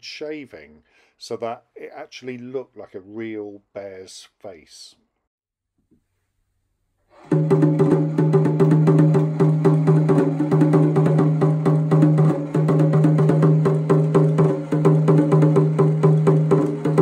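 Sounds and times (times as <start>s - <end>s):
toy drum roll: 7.2s - 17.0s.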